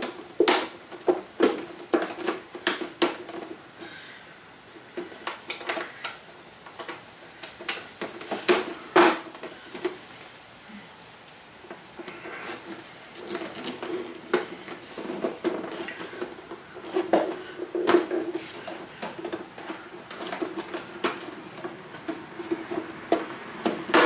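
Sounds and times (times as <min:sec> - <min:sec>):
hand tools and parts clinking: 0:11.7 - 0:24.0.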